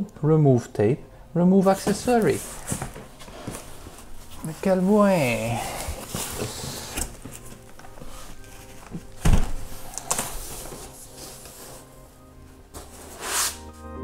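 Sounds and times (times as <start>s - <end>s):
cardboard rustling: 1.6s - 13.8s
cardboard thump: 9.2s - 10.3s.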